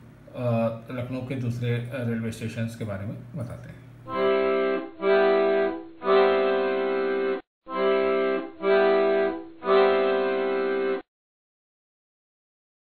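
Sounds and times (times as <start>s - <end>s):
music of held chords: 4.1s - 11.0s.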